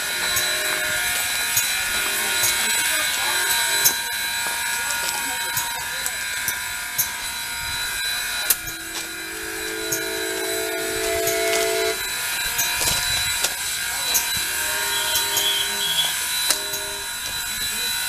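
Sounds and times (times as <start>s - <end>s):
locomotive horn chord: 1.8s - 5.8s, 7.2s - 12.3s, 14.5s - 17.3s.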